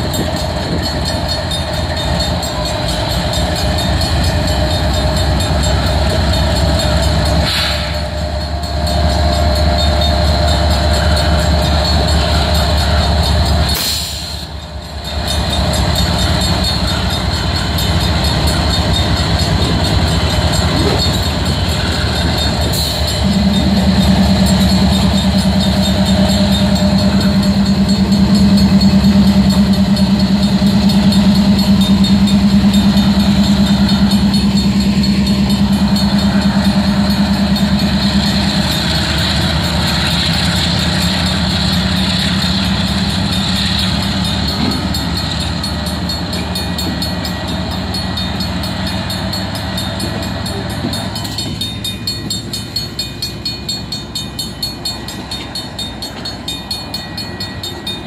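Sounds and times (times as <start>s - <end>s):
crossing bell ringing: 0.0s - 58.0s
diesel locomotives passing: 0.0s - 58.0s.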